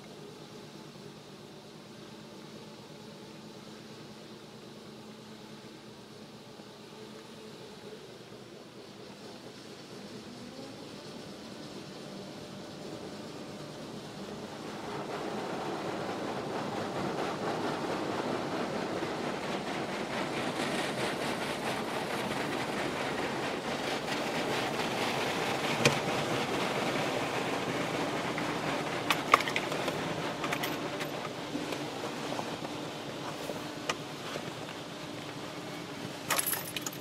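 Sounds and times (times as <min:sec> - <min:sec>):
car wash water spraying: 0:00.0 - 0:36.3.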